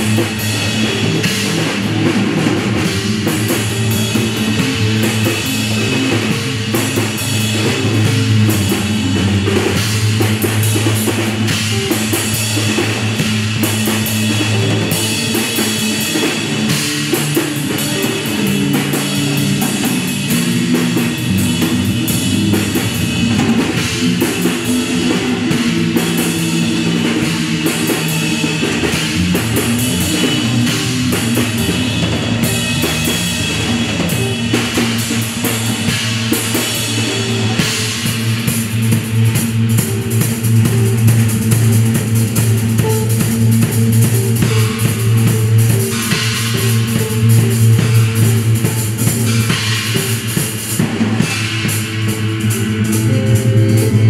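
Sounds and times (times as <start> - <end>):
low bass guitar notes: 0.0 - 36.1, 50.9 - 54.0
drum beat with cymbals: 0.0 - 54.0
guitar: 0.0 - 54.0.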